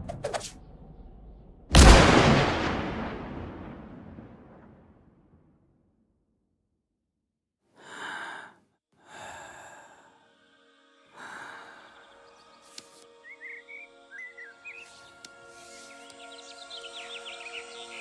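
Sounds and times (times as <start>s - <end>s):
breathy sighs: 7.8s - 10.4s, 11.1s - 12.2s
soft music tones: 10.3s - 18.0s
birds chirping: 11.3s - 18.0s.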